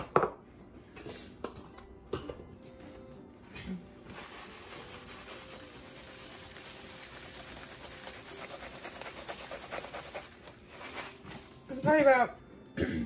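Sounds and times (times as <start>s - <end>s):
breadcrumbs pouring into bowl: 4.2s - 12.1s.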